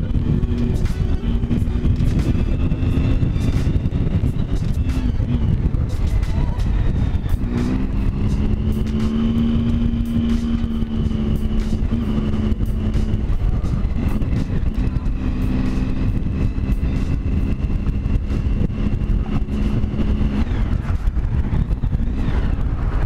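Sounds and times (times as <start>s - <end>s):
motorcycle engine cruising: 0.0s - 23.0s
wind buffeting microphone: 0.0s - 23.0s.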